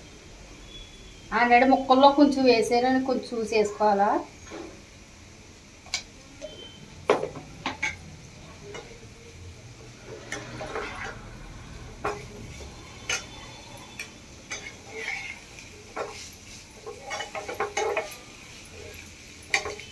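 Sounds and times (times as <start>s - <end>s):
spoon scraping frying pan: 7.2s - 8.1s, 10.0s - 11.4s, 12.0s - 19.9s.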